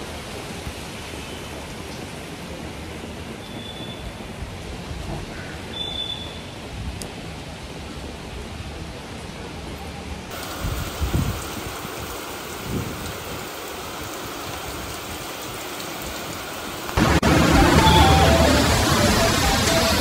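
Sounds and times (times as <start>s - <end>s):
rain on a paved roof: 0.0s - 20.0s
wet street noise: 0.0s - 20.0s
low rumbles: 17.0s - 20.0s
music notes tune: 17.2s - 20.0s.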